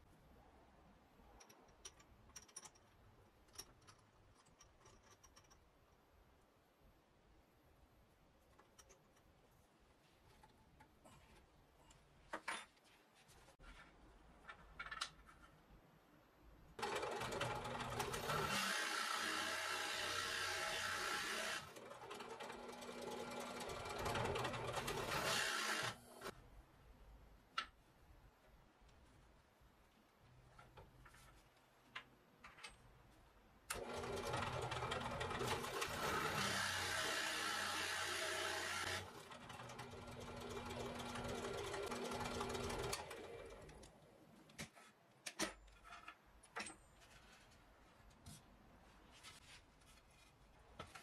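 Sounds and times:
drill press motor running: 16.9s - 21.7s, 22.3s - 26.3s, 33.8s - 42.9s.

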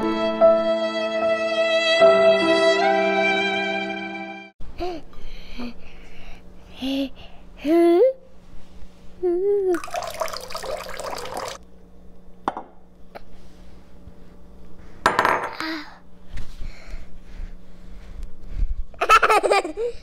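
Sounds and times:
broth pouring and splashing: 9.8s - 11.6s.

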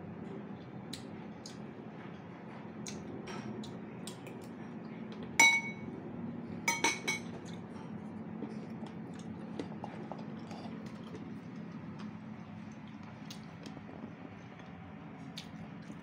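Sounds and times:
utensil clinking against bowl: 5.4s - 5.9s, 6.7s - 7.4s.

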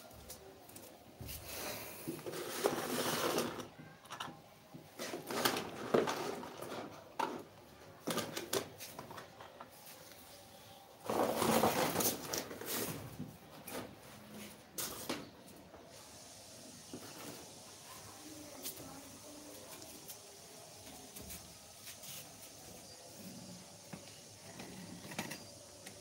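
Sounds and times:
plastic and cardboard rustling: 2.1s - 3.8s, 5.0s - 10.2s, 11.0s - 15.4s.

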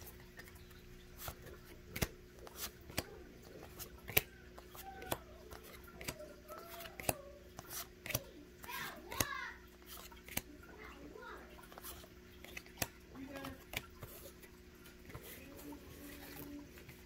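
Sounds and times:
trading cards snapping: 1.2s - 8.3s, 9.9s - 10.5s.

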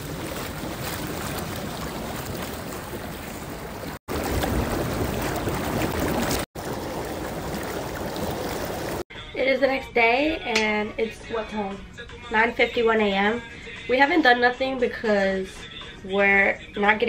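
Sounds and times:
hot tub jets bubbling: 0.0s - 9.0s.

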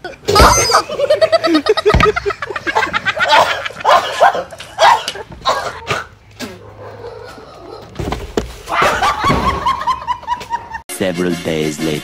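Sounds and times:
young men laughing: 0.1s - 5.4s, 8.7s - 10.8s.

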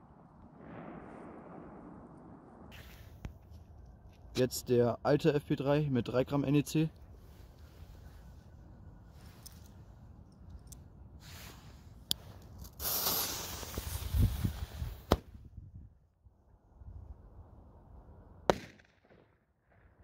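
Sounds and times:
firecracker fuse hissing: 2.7s - 3.2s, 12.6s - 15.2s
sharp cracks of burning fuse: 12.6s - 15.2s
firecracker bang: 18.5s - 19.2s.

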